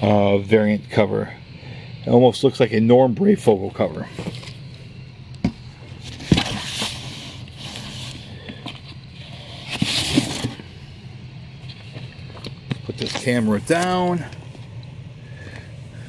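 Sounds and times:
paper rustling and scraping: 0:06.0 - 0:10.7.

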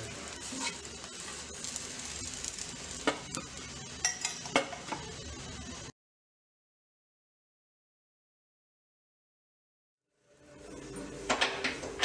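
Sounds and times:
flatbread sizzling in oil: 0:00.0 - 0:05.9.

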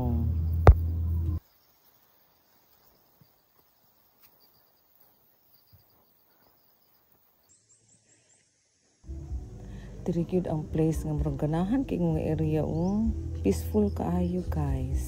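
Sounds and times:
high insect chirping: 0:00.0 - 0:09.8.

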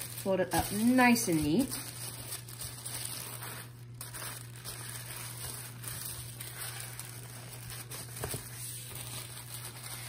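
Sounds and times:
tissue paper rustling and crinkling: 0:00.0 - 0:10.0.

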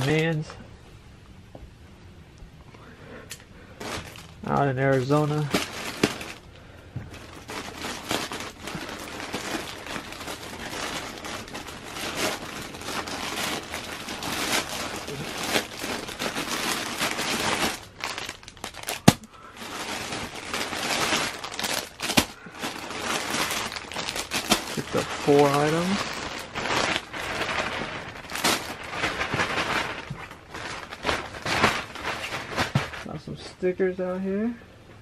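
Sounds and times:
plastic packaging crinkling: 0:00.0 - 0:00.5, 0:03.7 - 0:33.1.

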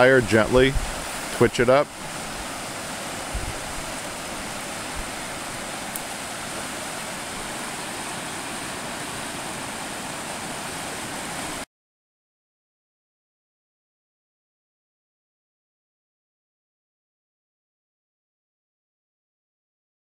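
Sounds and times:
river water rushing over rocks: 0:00.0 - 0:11.6.

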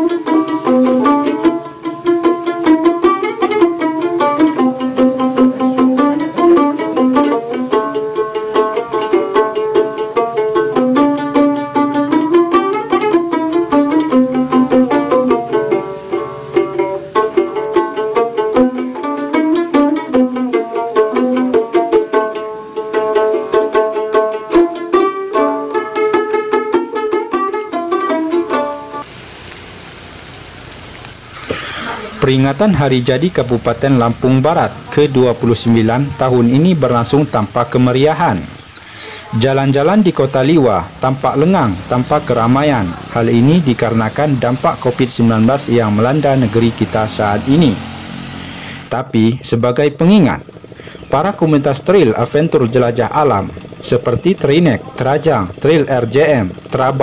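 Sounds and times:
plucked string melody: 0:00.0 - 0:29.7, 0:31.9 - 0:57.0
steady hiss: 0:00.0 - 0:57.0
steady beat: 0:31.2 - 0:49.0.

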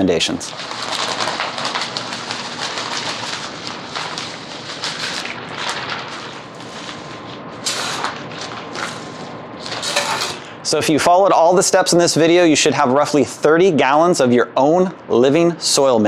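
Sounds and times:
plastic bag crinkling: 0:00.4 - 0:10.4.

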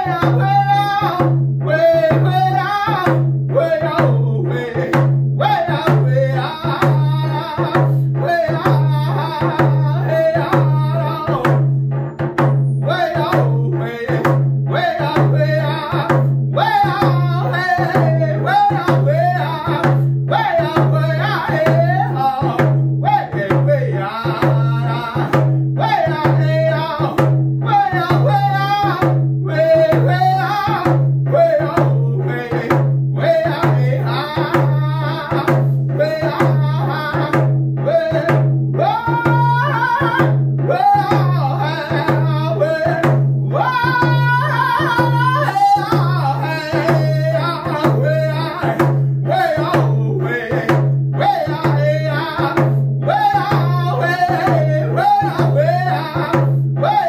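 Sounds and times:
frame drum beating: 0:00.0 - 0:57.0
man singing in high voice: 0:00.0 - 0:57.0.

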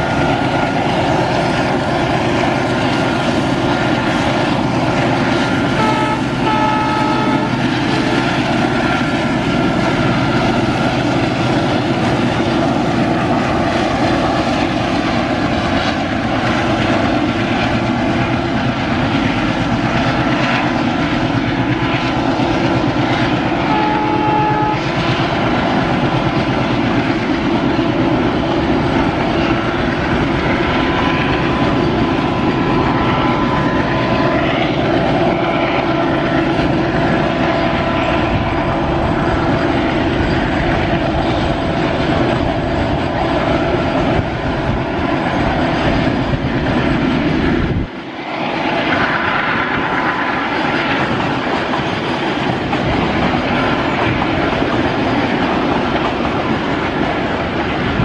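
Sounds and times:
diesel locomotive engines: 0:00.0 - 0:58.0
train wheels rumbling on rails: 0:00.0 - 0:58.0
train horn: 0:05.6 - 0:07.8, 0:23.6 - 0:25.2.

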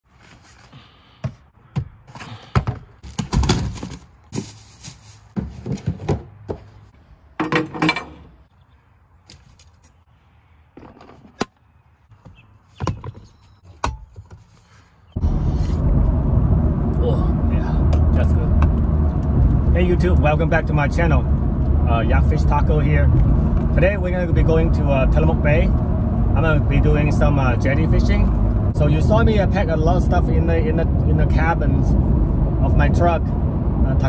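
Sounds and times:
plastic bag rustling: 0:03.0 - 0:05.7
clothes rustling: 0:03.7 - 0:05.8
truck driving on road: 0:15.1 - 0:34.0.

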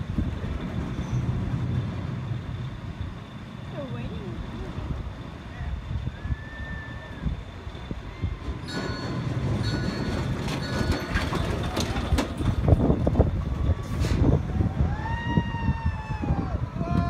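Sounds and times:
wind buffeting microphone: 0:00.0 - 0:17.0
zipline trolley wheels squealing: 0:00.2 - 0:16.4
zipline trolley clattering on cable: 0:08.4 - 0:13.2.

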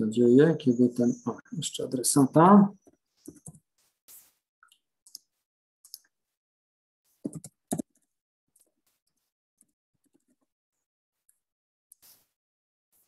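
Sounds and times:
keyboard and mouse clicking: 0:07.2 - 0:08.1.

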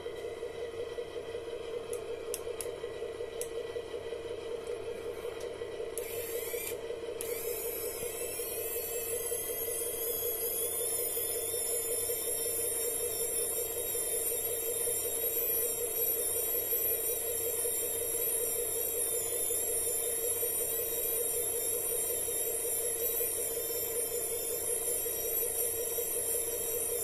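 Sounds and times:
small electric motor whining: 0:06.0 - 0:27.0.

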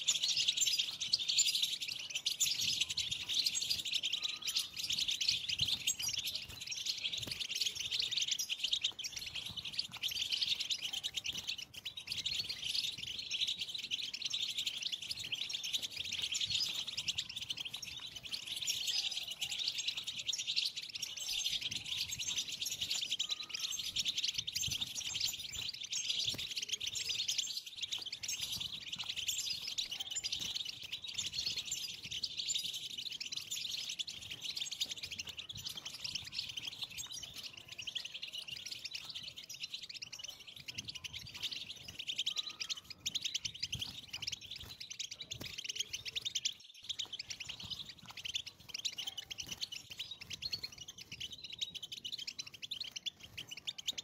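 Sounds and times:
goldfinches twittering: 0:00.0 - 0:54.0.

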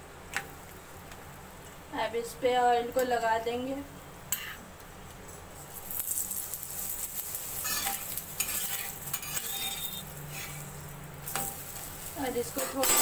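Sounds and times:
oil sizzling on hot griddle: 0:05.6 - 0:13.0
spatula clicking on griddle: 0:05.9 - 0:10.5.

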